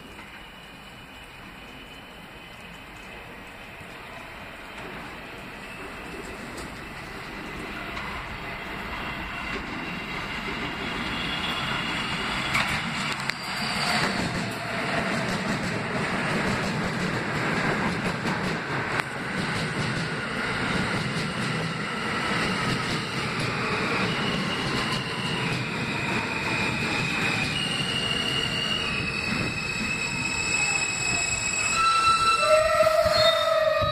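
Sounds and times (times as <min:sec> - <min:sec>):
train wheels rumbling on rail: 0:00.0 - 0:33.9
high brake squeals: 0:09.0 - 0:14.8, 0:23.0 - 0:33.9.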